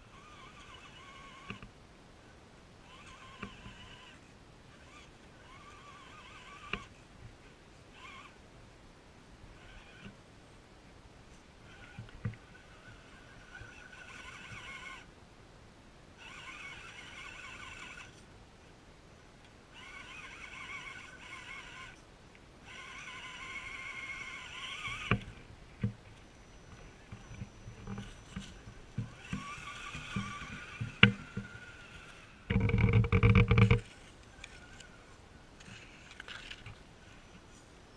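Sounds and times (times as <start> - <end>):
electric motor and gearbox whining: 0.0 - 1.7, 2.8 - 7.0, 7.9 - 8.4, 9.5 - 10.2, 11.6 - 15.1, 16.2 - 18.3, 19.7 - 22.0, 22.6 - 37.9.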